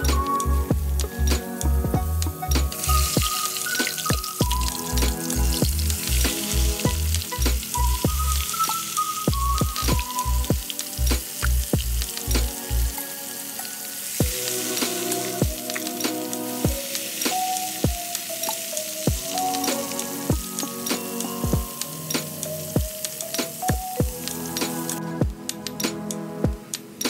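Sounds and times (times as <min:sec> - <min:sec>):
sizzle of bubbling oil: 0:00.0 - 0:25.0
background music with steady beat: 0:00.0 - 0:27.0.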